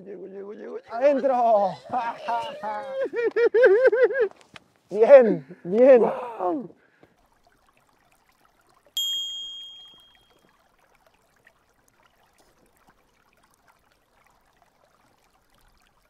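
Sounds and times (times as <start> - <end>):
river water trickling: 6.5 - 16.0
bright chime: 9.0 - 10.4.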